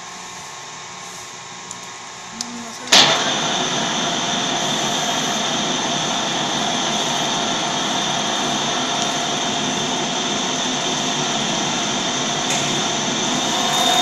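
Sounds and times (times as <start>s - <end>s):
metal lathe cutting with whine: 3.0s - 14.0s.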